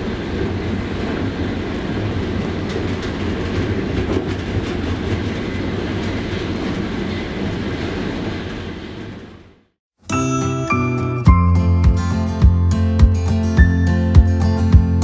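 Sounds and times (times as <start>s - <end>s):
train wheels rumbling on rails: 0.0s - 9.6s
music: 10.0s - 15.0s.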